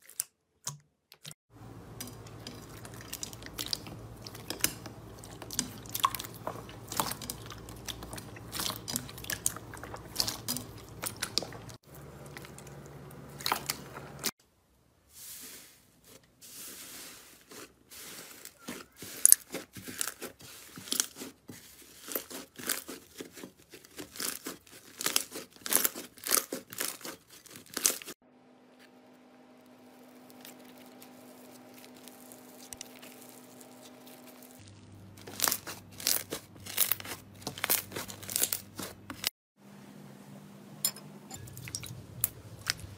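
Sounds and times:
slime clicking and crackling: 21.9 - 28.1, 30.2 - 39.3.

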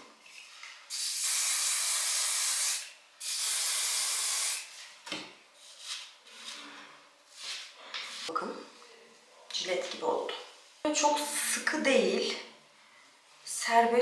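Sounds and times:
aerosol can spraying: 0.9 - 4.7.

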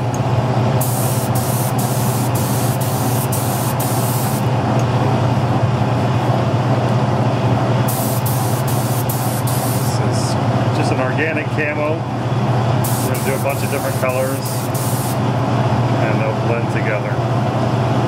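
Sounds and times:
steady low hum: 0.0 - 18.0
spray gun hissing in bursts: 0.8 - 4.4, 7.9 - 10.0, 12.8 - 15.2.

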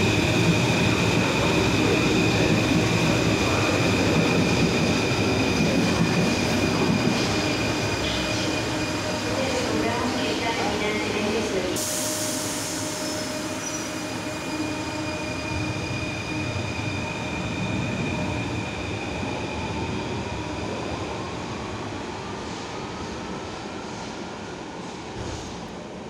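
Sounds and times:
train running gear rumbling: 0.0 - 11.8.

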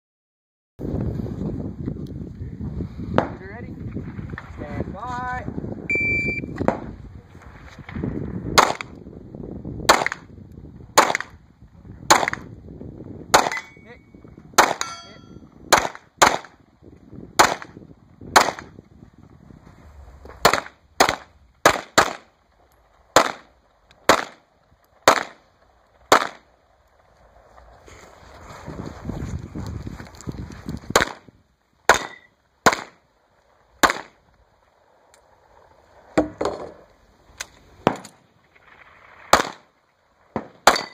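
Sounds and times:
gunshots: 8.5 - 8.9, 9.9 - 10.3, 11.0 - 11.4, 12.1 - 12.5, 13.3 - 14.0, 14.6 - 16.6, 17.4 - 18.8, 20.4 - 22.3, 23.1 - 24.4, 25.0 - 25.4, 26.1 - 26.5, 30.9 - 31.3, 31.9 - 33.0, 33.8 - 34.2, 37.8 - 39.7, 40.3 - 40.9.

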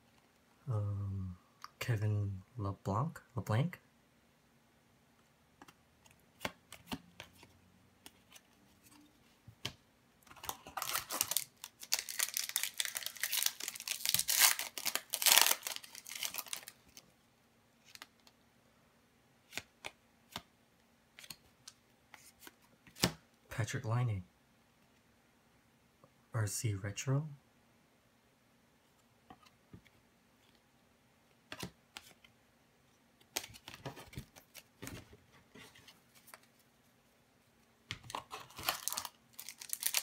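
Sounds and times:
trading cards clicking and rustling: 10.3 - 16.8
foil wrapper tearing and crinkling: 10.5 - 16.9, 38.1 - 40.0.

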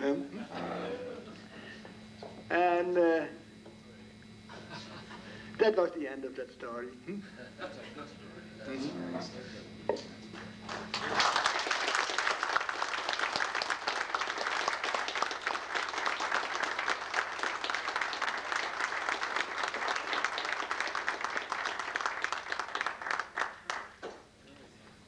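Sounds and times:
audience applauding: 10.3 - 24.2.

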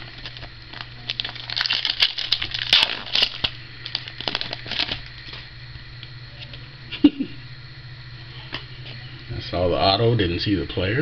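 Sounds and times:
foil wrapper tearing and crinkling: 0.0 - 5.5.

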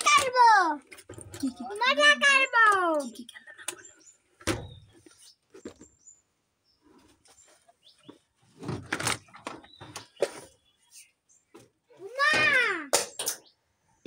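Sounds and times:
plastic toys knocking and rustling: 0.0 - 3.8, 8.0 - 10.6, 11.5 - 13.5.

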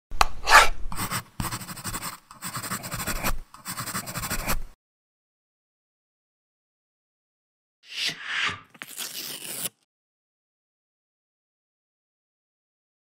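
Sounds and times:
ink brush scratching on paper: 0.5 - 4.7.

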